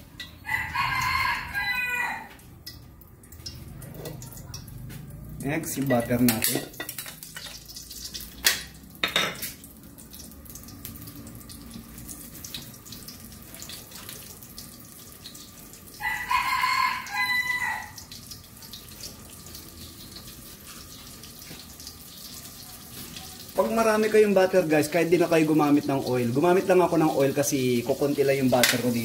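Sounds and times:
butter sizzling in oil: 0:00.0 - 0:29.0
rooster crowing: 0:00.4 - 0:02.5, 0:16.0 - 0:18.1.

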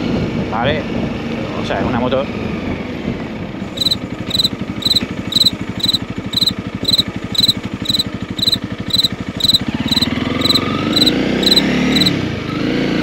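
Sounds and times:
high electronic beeps: 0:03.8 - 0:12.1
motorcycle engine idling and revving: 0:04.0 - 0:13.0.

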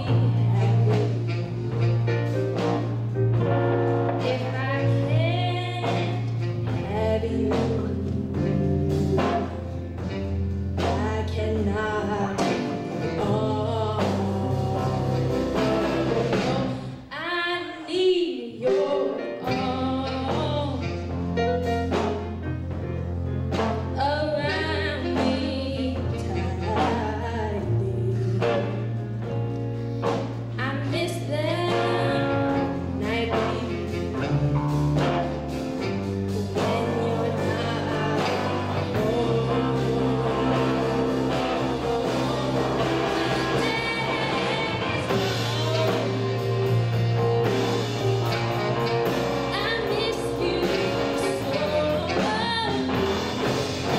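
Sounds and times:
woman singing: 0:00.0 - 0:02.1, 0:04.0 - 0:09.6, 0:10.8 - 0:21.0, 0:24.0 - 0:29.0, 0:30.6 - 0:34.4, 0:36.2 - 0:47.9, 0:49.5 - 0:53.3
electric guitar: 0:00.0 - 0:17.0, 0:18.8 - 0:53.9
bass guitar: 0:00.0 - 0:17.8, 0:18.6 - 0:53.9
drum kit: 0:00.0 - 0:17.8, 0:18.6 - 0:53.9
blues band playing: 0:00.0 - 0:53.9
saxophone: 0:00.0 - 0:53.9.

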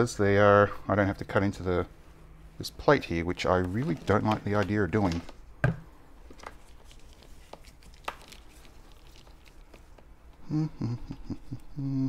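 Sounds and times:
short hummed voice-like sound: 0:10.4 - 0:12.0.

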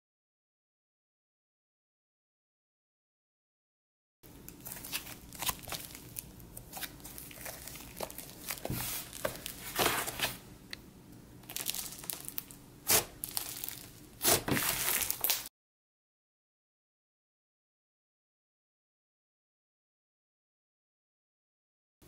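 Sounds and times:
slime crackling and popping: 0:04.5 - 0:09.6, 0:11.4 - 0:15.5.

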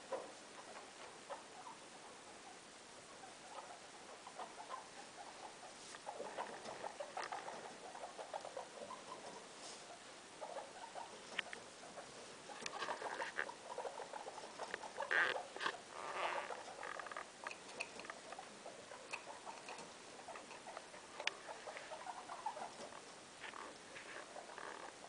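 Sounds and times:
guinea pigs squeaking: 0:00.0 - 0:25.0
scurrying and rustling: 0:05.3 - 0:25.0.

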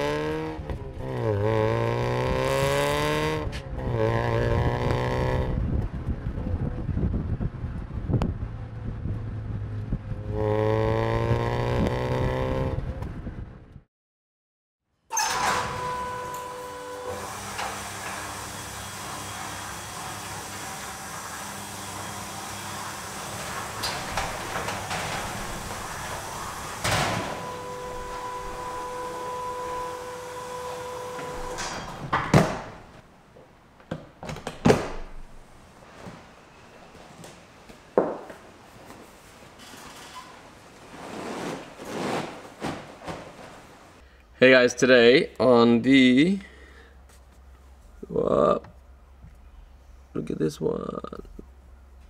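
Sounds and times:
wind and road noise: 0:00.0 - 0:13.9, 0:20.2 - 0:41.9
steady two-note tone: 0:15.6 - 0:17.2, 0:27.4 - 0:31.6.

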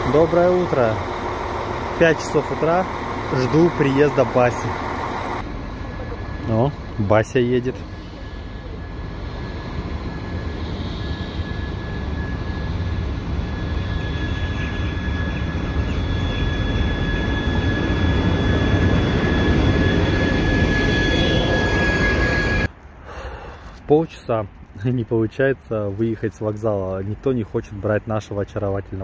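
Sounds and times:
thin high whine: 0:00.0 - 0:22.7
train rumbling: 0:00.0 - 0:22.8.

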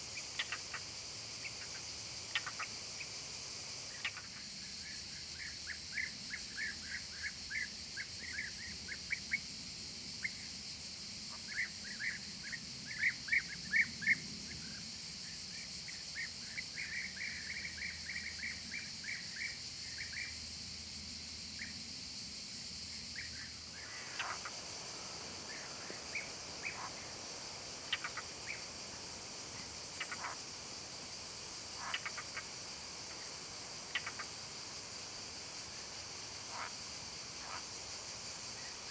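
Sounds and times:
high-pitched insect chorus: 0:00.0 - 0:38.9
bird calls: 0:01.4 - 0:02.7, 0:23.2 - 0:28.7, 0:29.5 - 0:30.5, 0:31.8 - 0:32.5, 0:33.9 - 0:34.4, 0:36.5 - 0:36.7
bird chirping: 0:23.1 - 0:27.2, 0:27.8 - 0:28.7, 0:29.6 - 0:30.4, 0:31.8 - 0:32.5.

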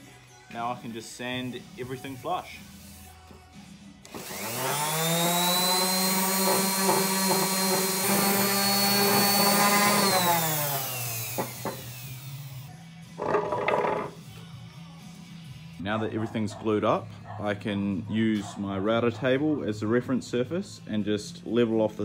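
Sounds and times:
orbital sander whining: 0:04.1 - 0:12.7.

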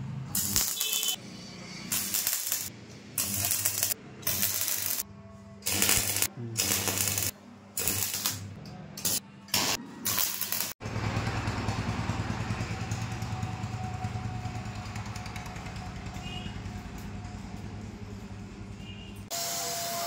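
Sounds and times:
welding arc crackling: 0:00.3 - 0:01.2, 0:01.9 - 0:05.0, 0:05.6 - 0:10.8.

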